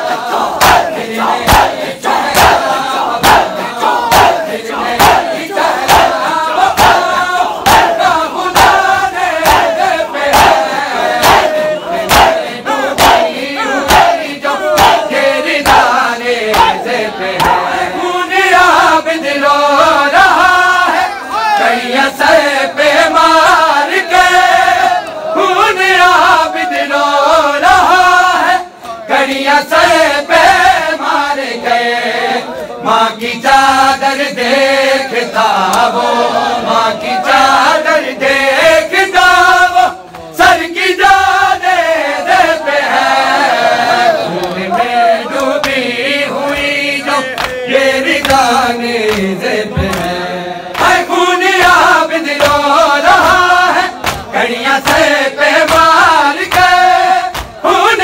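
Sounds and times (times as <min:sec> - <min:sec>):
rhythmic chest-beating slaps: 0:00.0 - 0:21.0, 0:21.8 - 0:58.0
loud chanting voices: 0:00.0 - 0:58.0
men singing a lament: 0:00.0 - 0:58.0.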